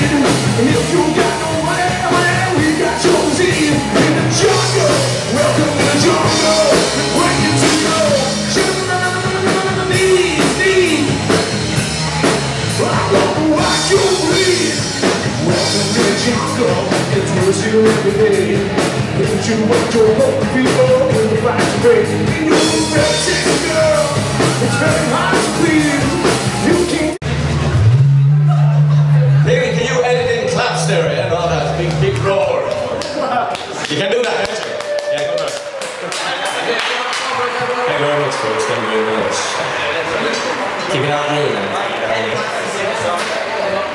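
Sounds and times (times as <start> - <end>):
person singing: 0.0 - 11.4, 12.7 - 27.2
drum kit: 0.0 - 29.5
electric guitar: 0.0 - 29.5
rock band playing: 0.0 - 33.2, 35.9 - 43.9.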